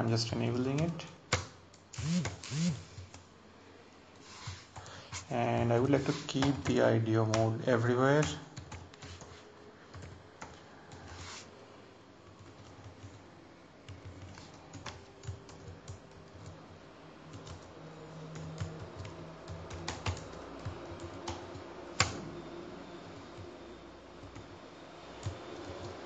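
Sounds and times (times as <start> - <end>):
computer keyboard typing: 9.9 - 11.2, 12.2 - 13.2, 13.8 - 16.6, 17.3 - 22.2, 25.2 - 26.0.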